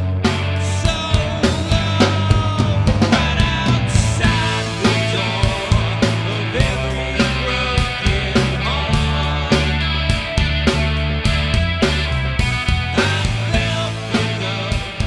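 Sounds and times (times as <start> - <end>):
rock band playing: 0.0 - 15.0
drum hits: 0.9 - 15.0.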